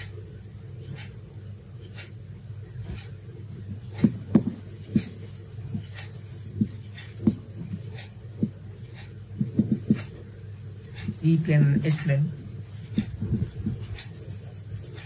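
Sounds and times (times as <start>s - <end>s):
steady low hum: 0.0s - 15.0s
marker squeaking on whiteboard: 0.8s - 1.2s, 1.8s - 2.2s, 2.8s - 3.2s, 3.8s - 10.2s, 10.9s - 15.0s.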